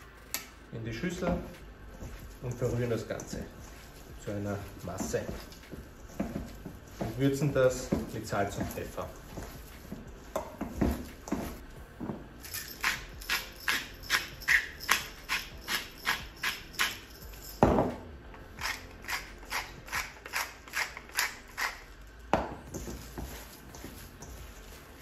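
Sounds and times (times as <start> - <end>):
hands kneading minced meat: 1.0 - 11.7, 22.5 - 25.0
pepper mill grinding: 12.4 - 17.6, 18.5 - 22.2
salt grinder ratcheting: 18.6 - 22.0.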